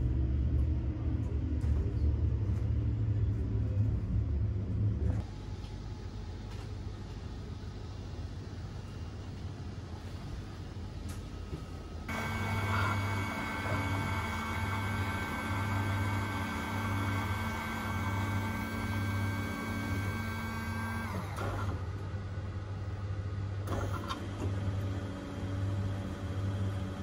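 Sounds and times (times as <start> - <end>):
pulsing low hum: 0.0 - 6.4
coffee machine humming and whining: 11.1 - 27.0.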